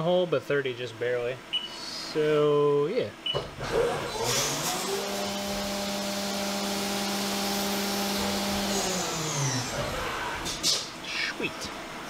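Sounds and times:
mill spindle whine: 0:03.3 - 0:12.0.

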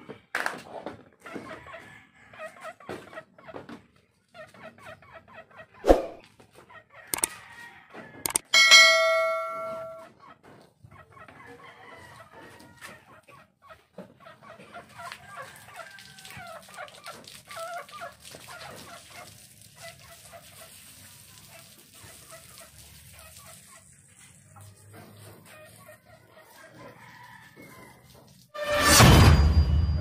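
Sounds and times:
chickens clucking: 0:00.1 - 0:28.3
ringing chime: 0:08.5 - 0:10.1
rooster crowing: 0:26.8 - 0:28.1.

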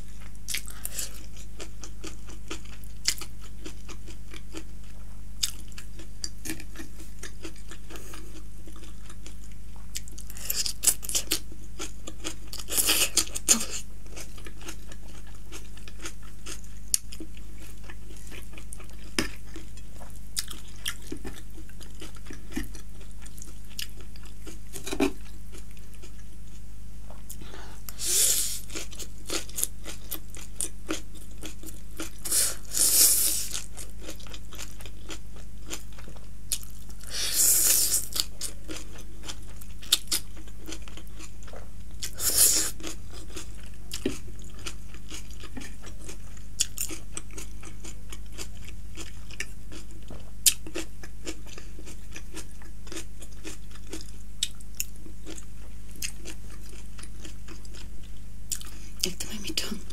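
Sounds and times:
person slurping noodles: 0:27.9 - 0:28.6.

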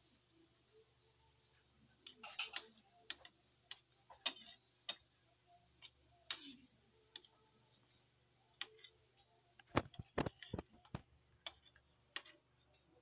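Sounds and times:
cutlery clicking against a plate: 0:02.0 - 0:05.1, 0:05.8 - 0:07.3.

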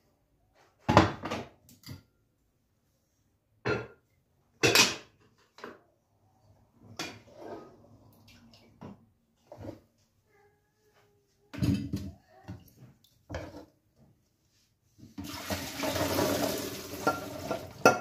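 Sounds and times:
wooden spoon scraping in pot: 0:07.0 - 0:08.0.

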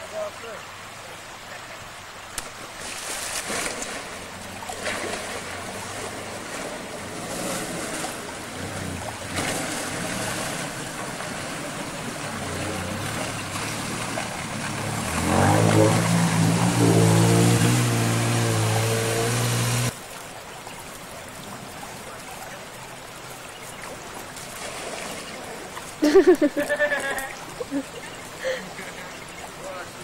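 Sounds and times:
water sloshing around vehicle: 0:00.0 - 0:30.0
engine revving: 0:04.9 - 0:19.9
vehicle engine running: 0:05.7 - 0:19.9.

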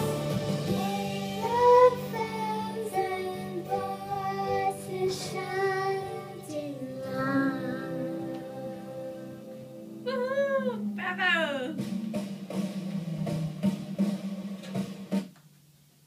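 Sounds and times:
karaoke backing music: 0:00.0 - 0:15.3
girl singing into microphone: 0:00.7 - 0:09.4.

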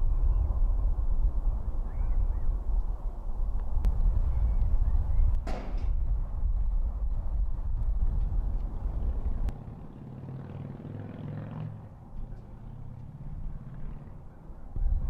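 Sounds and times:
wind buffeting microphone: 0:00.0 - 0:09.8, 0:14.8 - 0:15.0.

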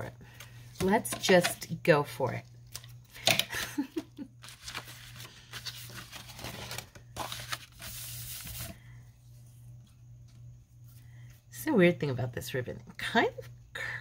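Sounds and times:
low steady hum: 0:00.0 - 0:14.0
paper rustling and sliding: 0:04.4 - 0:08.8.

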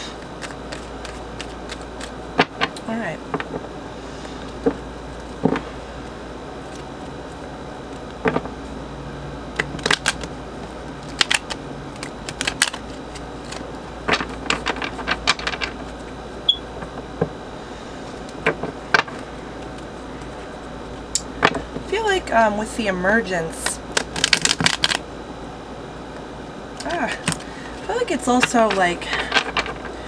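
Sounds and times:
cards being shuffled: 0:00.0 - 0:08.7, 0:09.5 - 0:16.2, 0:23.9 - 0:25.0, 0:26.8 - 0:30.0.

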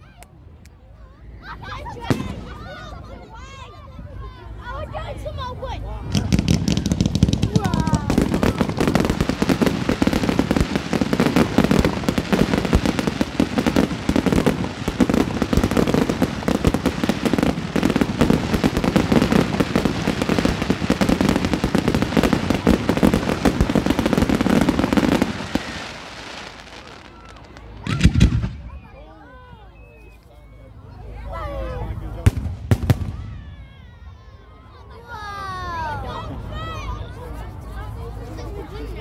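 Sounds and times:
fireworks bangs and crackle: 0:01.9 - 0:02.8, 0:06.0 - 0:29.0, 0:32.2 - 0:33.8.

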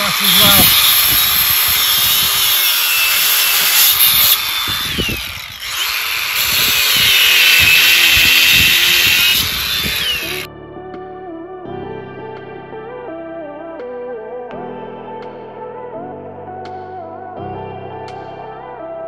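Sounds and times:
power tool whining under load: 0:00.0 - 0:10.5.

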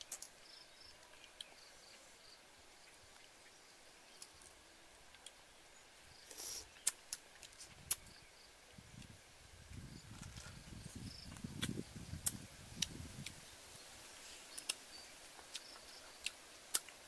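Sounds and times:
soft chewing: 0:00.0 - 0:05.4, 0:06.2 - 0:08.1, 0:09.0 - 0:17.0
faint insects: 0:00.0 - 0:17.0
mouth clicks and smacks: 0:11.3 - 0:13.4, 0:15.4 - 0:17.0.

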